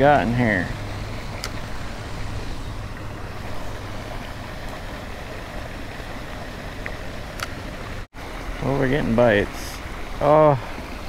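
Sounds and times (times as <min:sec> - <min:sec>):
low hum: 0:00.0 - 0:08.6
even hiss: 0:08.6 - 0:11.0.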